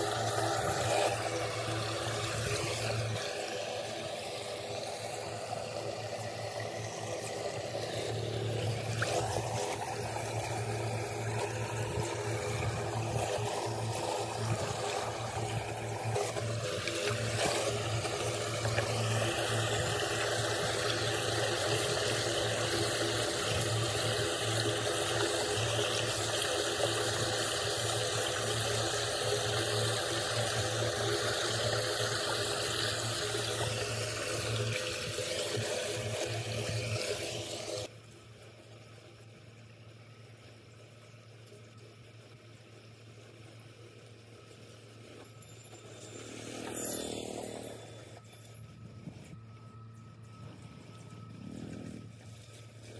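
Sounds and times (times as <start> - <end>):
water pouring into storm drain: 0.0 - 37.9
steady low hum: 0.0 - 52.9.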